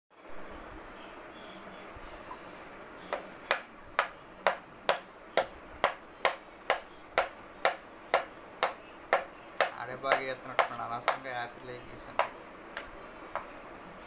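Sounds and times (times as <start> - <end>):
pencil tapping on clipboard: 3.1 - 11.3, 12.1 - 13.6.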